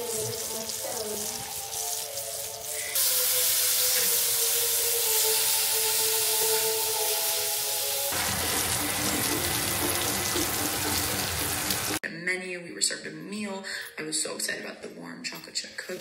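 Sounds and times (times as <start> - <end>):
music: 0.0 - 12.0
water running from a tap: 0.0 - 12.0.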